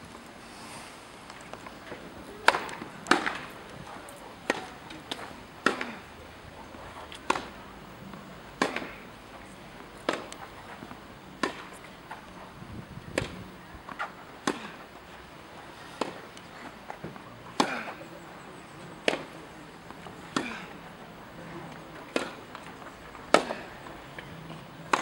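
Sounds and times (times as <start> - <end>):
rackets hitting tennis ball: 1.3 - 12.4, 13.0 - 18.3, 19.0 - 25.0
tennis ball bouncing on court: 2.4 - 3.5, 7.1 - 7.6, 8.6 - 9.0, 10.0 - 10.4, 11.4 - 11.8, 19.0 - 20.8, 22.0 - 23.7.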